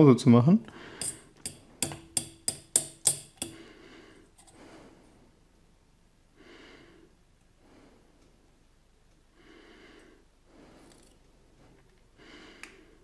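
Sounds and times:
faint breathing: 0.7 - 1.4, 3.4 - 5.4, 6.3 - 8.4, 9.3 - 13.0
forks clinking on metal bowl: 1.0 - 3.6.

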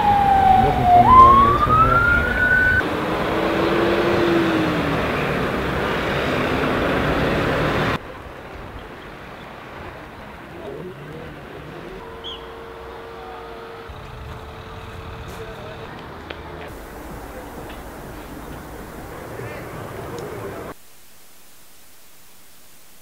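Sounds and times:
emergency vehicle siren: 0.0 - 8.0, 12.0 - 20.8
road noise: 0.0 - 20.8.

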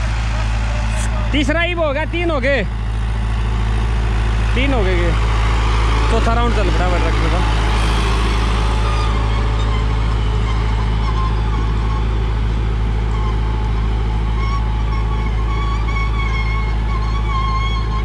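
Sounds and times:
tractor diesel engine running: 0.0 - 18.0
thin wavering high tone: 5.3 - 18.0.

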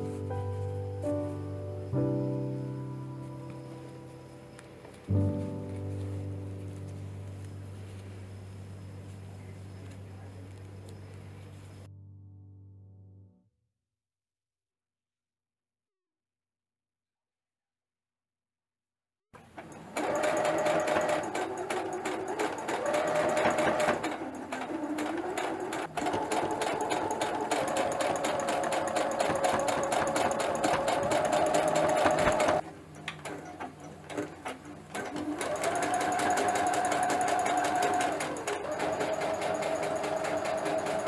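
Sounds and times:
sewing machine stitching: 19.4 - 41.0.

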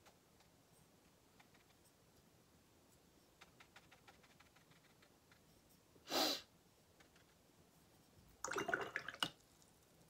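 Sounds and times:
person sniffing: 6.0 - 6.5.

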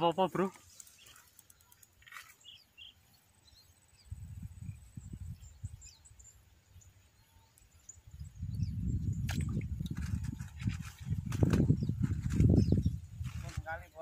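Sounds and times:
faint bird chirps: 0.6 - 13.5
wind buffeting microphone: 4.0 - 6.3, 8.0 - 13.9.

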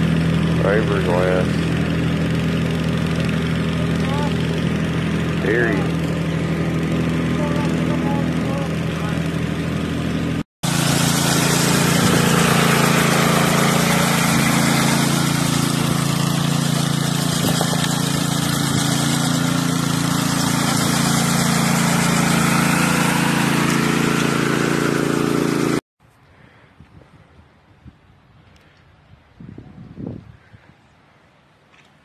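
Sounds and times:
power trowel engine running: 0.0 - 25.8
faint wind: 26.0 - 32.0.

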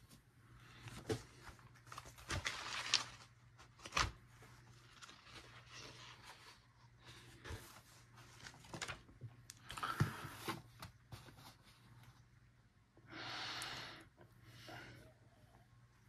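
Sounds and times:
paper rustling: 0.8 - 6.7, 7.4 - 11.8.

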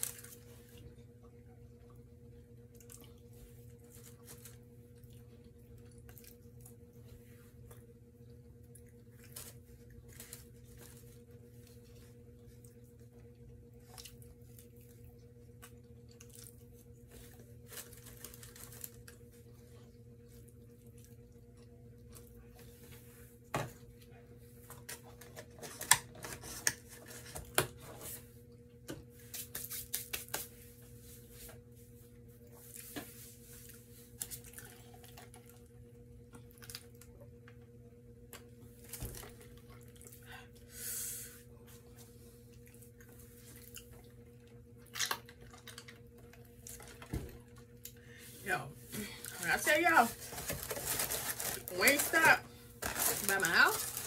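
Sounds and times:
low electrical hum: 0.0 - 54.0
fingers handling food and wrappers: 17.3 - 19.3, 49.2 - 54.0.

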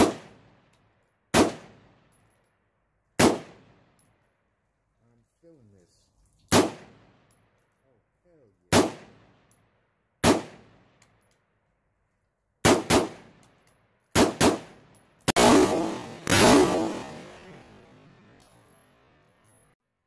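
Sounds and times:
gunshots with echo: 0.0 - 0.4, 1.4 - 1.9, 3.2 - 3.8, 8.7 - 9.3, 12.6 - 13.4, 14.2 - 18.4.

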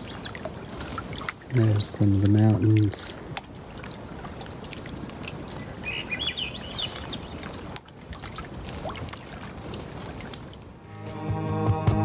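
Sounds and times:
songbird calling: 0.0 - 2.3, 5.3 - 7.8
small waves lapping: 0.0 - 10.9.

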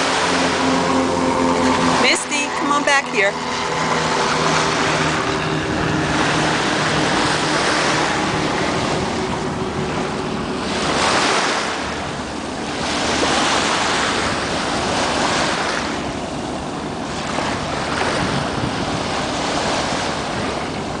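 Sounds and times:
sea waves washing onto beach: 0.0 - 21.0
wind rumbling on microphone: 0.0 - 21.0.

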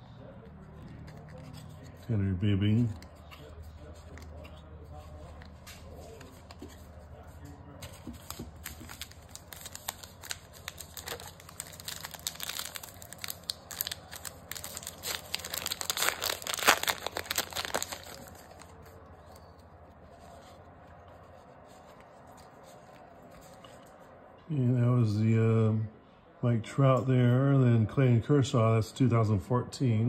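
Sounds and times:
wrapper being torn and crinkled: 8.2 - 19.0.

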